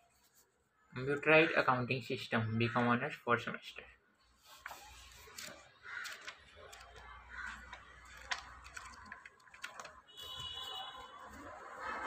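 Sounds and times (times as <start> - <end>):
paper pages rustling: 4.4 - 12.0.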